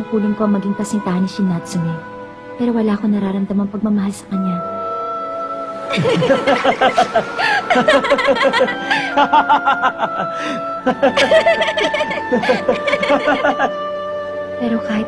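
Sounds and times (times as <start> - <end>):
background music with held notes: 0.0 - 15.0
laughter: 5.9 - 13.8.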